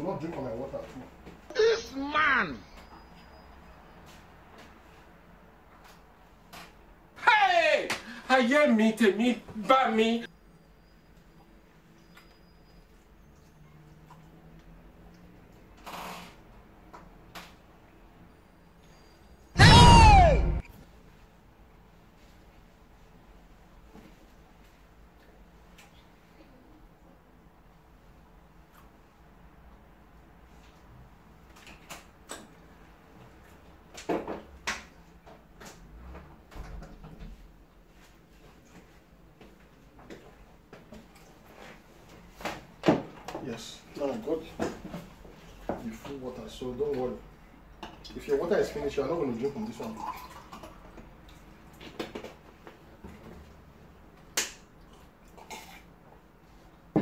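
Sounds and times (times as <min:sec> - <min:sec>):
eating and drinking sounds: 0:49.4 - 0:53.2, 0:54.8 - 0:56.6.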